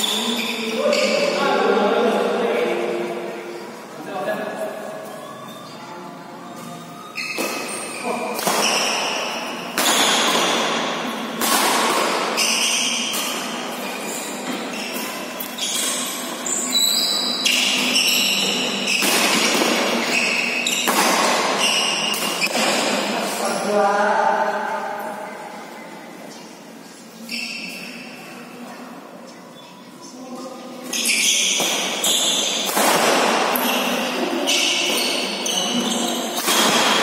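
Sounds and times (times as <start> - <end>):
rackets hitting shuttlecock: 7.3 - 13.6, 17.5 - 23.1, 31.4 - 33.9, 34.5 - 37.0.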